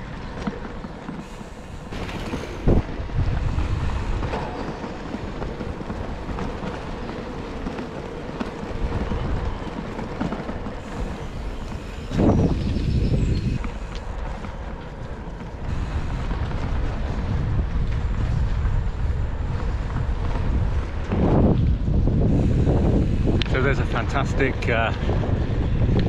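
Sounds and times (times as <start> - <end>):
low riding rumble: 0.0 - 26.0
wind buffeting microphone: 0.0 - 26.0.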